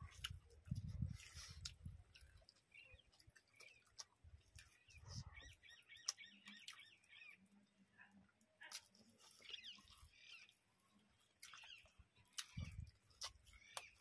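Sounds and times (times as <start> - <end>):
people chewing food: 0.0 - 14.0
small bird chirping: 2.2 - 7.6, 9.1 - 14.0.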